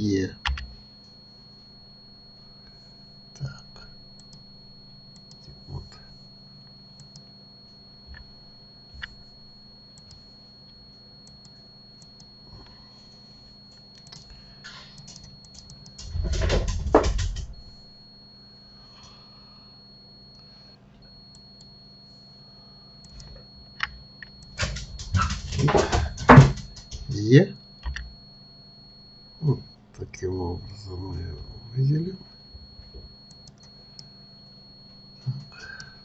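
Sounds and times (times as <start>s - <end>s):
electrical hum: 0.0s - 36.0s
thin high whine: 0.0s - 36.0s
computer mouse clicks: 0.4s - 0.7s, 4.2s - 4.4s, 5.1s - 5.6s, 7.0s - 7.3s, 10.0s - 10.2s, 11.2s - 12.3s, 13.9s - 14.3s, 14.9s - 16.2s, 23.0s - 25.2s, 27.8s - 28.1s, 33.3s - 34.1s.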